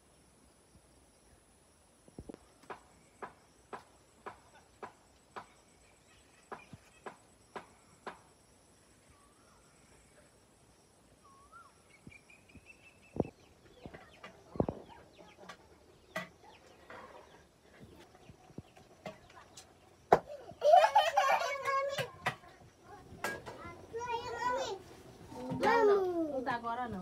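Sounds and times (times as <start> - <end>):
short bird calls: 11.2 - 15.4
rustling and knocks: 21.5 - 23.9.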